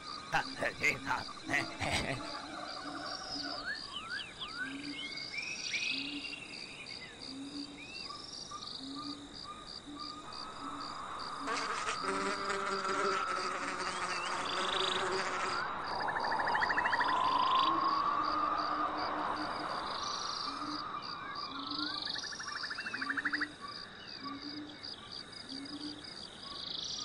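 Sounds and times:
insects chirping: 0:03.3 - 0:27.0
flying insect buzzing: 0:10.6 - 0:15.7.

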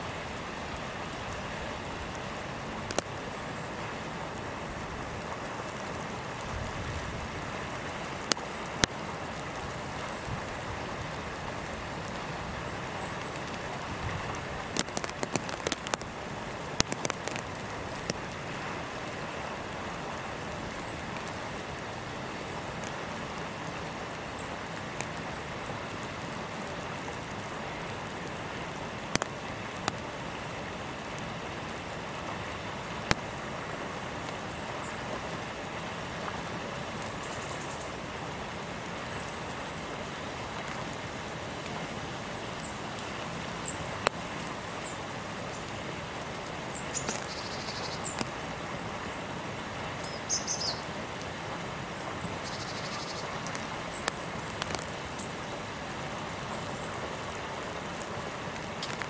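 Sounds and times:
rain hissing: 0:00.0 - 0:59.0
sharp drips: 0:11.4 - 0:19.9
faint high bird chirps: 0:52.4 - 0:53.3.

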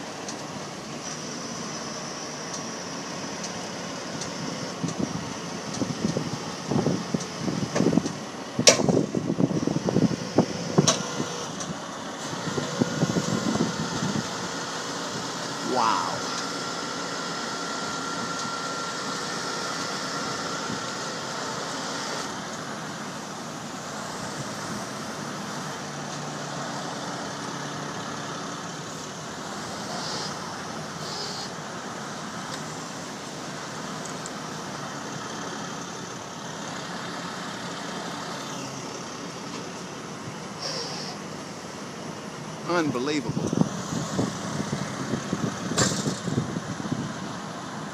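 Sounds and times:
diesel truck engines running: 0:00.0 - 0:47.9
thin steady whine: 0:09.8 - 0:27.1.

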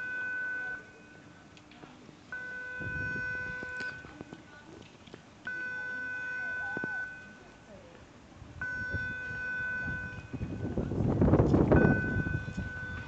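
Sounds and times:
high electronic warning beeps: 0:00.0 - 0:01.3, 0:02.3 - 0:04.2, 0:05.4 - 0:07.6, 0:08.6 - 0:10.8, 0:11.7 - 0:13.0
wind noise on microphone: 0:02.7 - 0:04.6, 0:08.2 - 0:13.0.

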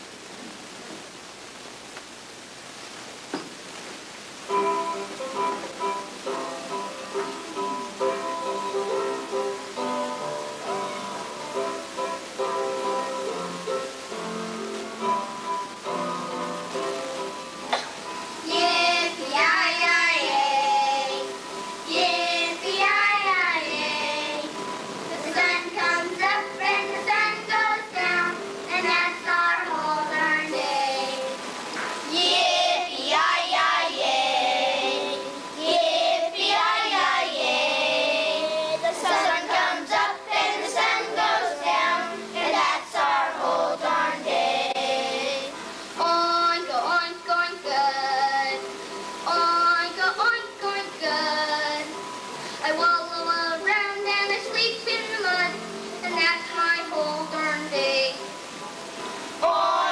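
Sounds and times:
young children singing: 0:17.7 - 0:52.0, 0:52.6 - 0:58.4, 0:59.4 - 0:59.9.

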